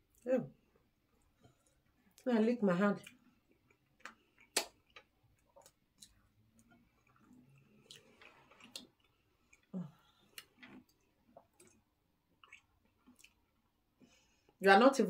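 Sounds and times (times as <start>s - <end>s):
chewing and lip smacks: 3.0s - 13.8s
sharp mouth clicks: 4.0s - 4.8s.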